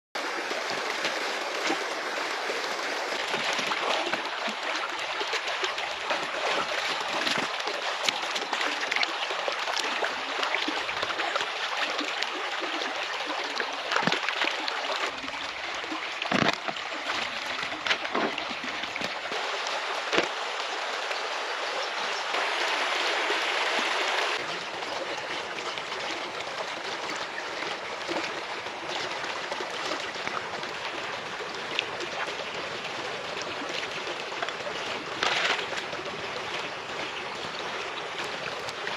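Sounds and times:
stream rushing over stones: 0.2s - 38.9s
stones knocking and splashing: 6.1s - 8.9s, 13.9s - 15.2s, 16.2s - 19.3s, 20.0s - 20.4s, 34.4s - 36.0s.

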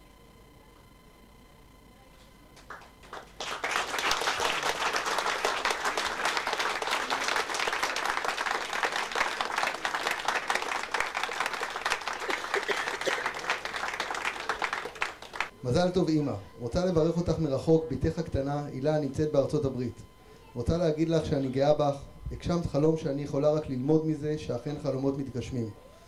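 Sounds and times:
audience applauding: 2.6s - 15.5s.

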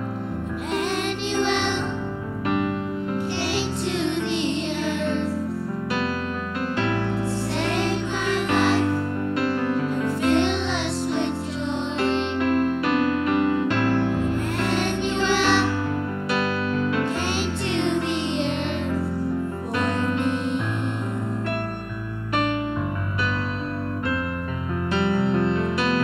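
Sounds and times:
keyboard accompaniment: 0.0s - 26.0s
children's choir singing: 0.5s - 2.2s, 3.2s - 5.6s, 7.0s - 12.6s, 14.0s - 16.1s, 17.0s - 21.4s.

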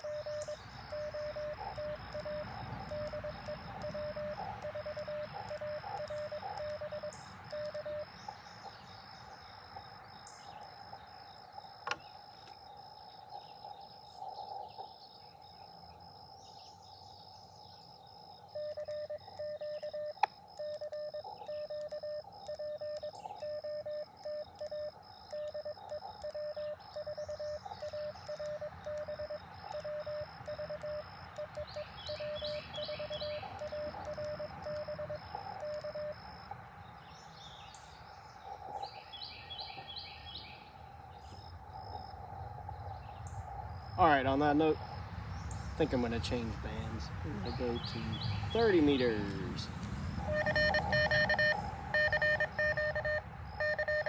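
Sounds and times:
morse code tone: 0.0s - 8.1s, 18.6s - 36.2s, 50.2s - 54.0s
birds chirping: 0.0s - 54.0s
crickets trilling: 0.0s - 54.0s.

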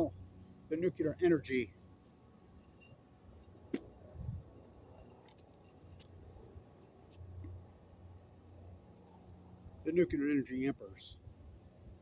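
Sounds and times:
small metal items jangling: 2.5s - 7.5s.

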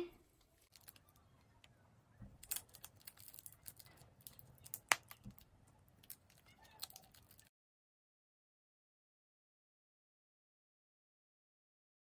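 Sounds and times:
plastic packet crinkling: 0.6s - 1.2s, 2.3s - 7.5s.

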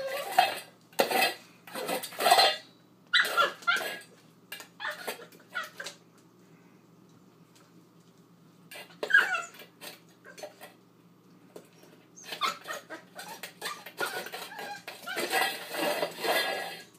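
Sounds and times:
metal bowl clattering on tile: 0.0s - 5.9s, 12.3s - 16.9s
puppy whimpers: 4.8s - 5.9s, 9.0s - 9.7s, 12.2s - 15.5s.

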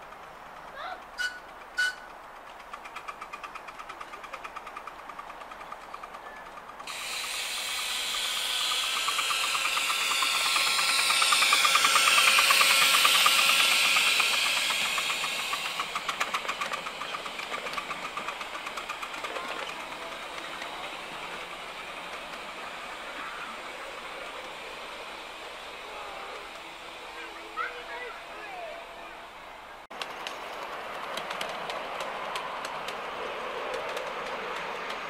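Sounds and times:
steam locomotive exhaust chuffs: 0.0s - 35.0s
loud hiss of steam: 6.9s - 28.6s.

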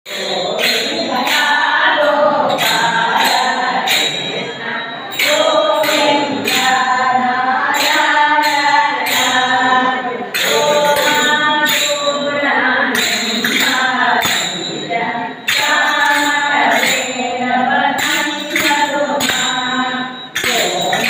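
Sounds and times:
sharp rhythmic beats: 0.0s - 21.0s
women singing together: 0.1s - 21.0s.

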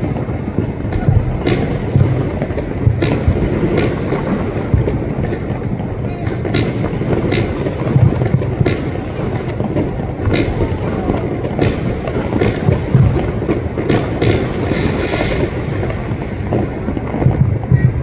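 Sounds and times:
distant fireworks bangs: 0.0s - 18.0s.

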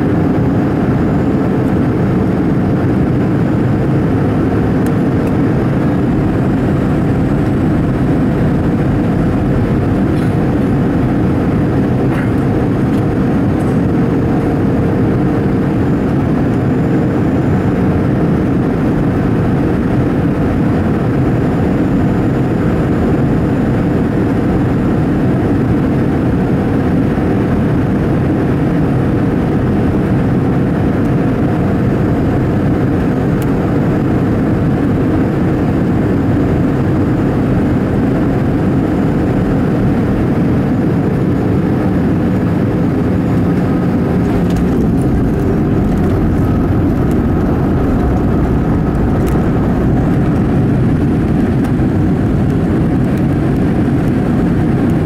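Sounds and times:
jet engines and airflow rushing: 0.0s - 55.0s
wheels rumbling on runway: 0.0s - 55.0s
faint steady whine: 29.0s - 55.0s.

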